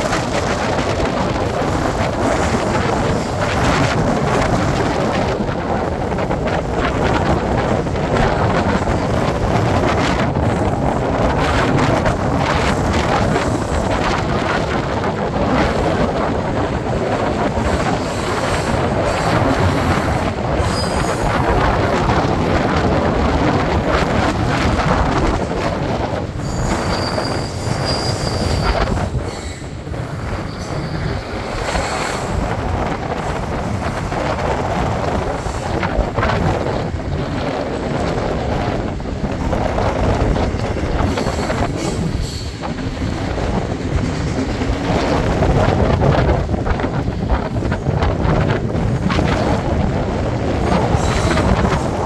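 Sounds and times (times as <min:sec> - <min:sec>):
train rumbling and rattling on rails: 0:00.0 - 0:52.0
wind buffeting microphone: 0:00.0 - 0:52.0
high wheel squeal: 0:20.6 - 0:21.2, 0:26.4 - 0:29.8.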